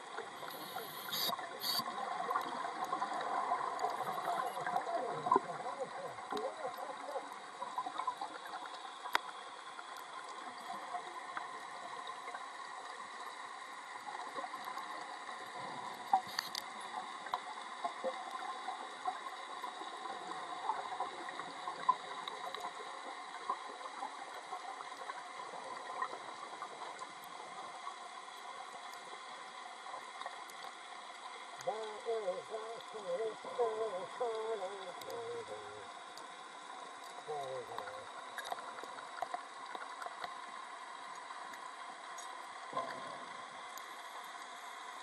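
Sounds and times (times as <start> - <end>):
steady underwater hiss: 0.0 - 45.0
sharp clicks and crackles: 0.2 - 5.5, 6.2 - 11.6, 14.2 - 20.0, 36.0 - 44.8.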